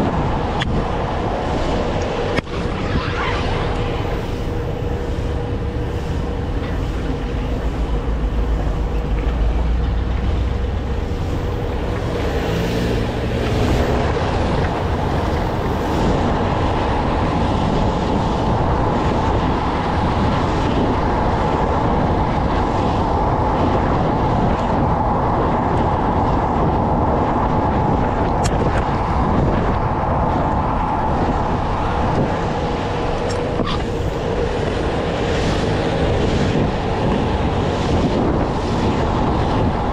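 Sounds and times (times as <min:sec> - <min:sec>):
road and wind noise rushing: 0:00.0 - 0:39.9
faint steady whine: 0:00.1 - 0:12.5.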